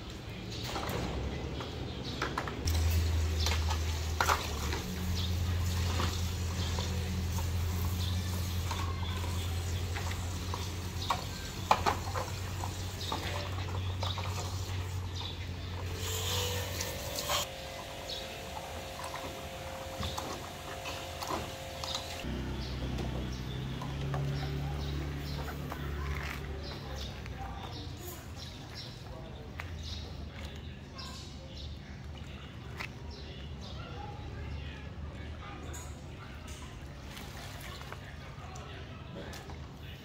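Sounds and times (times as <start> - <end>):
garden hose water running: 2.6 - 26.8
water splashing in plastic basin: 37.0 - 38.3.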